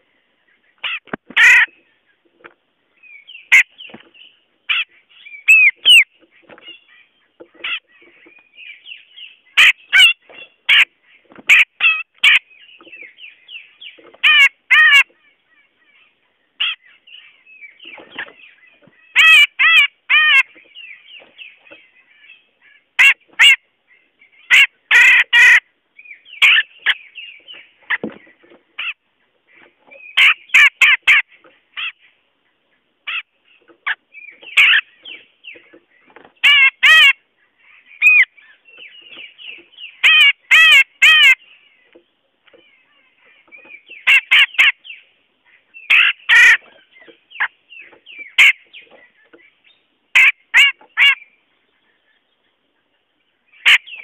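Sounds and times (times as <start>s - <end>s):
bulbul harsh calls: 0.6s - 2.2s, 3.0s - 32.2s, 33.0s - 41.9s, 42.5s - 52.0s
bird chattering notes: 4.7s - 10.9s.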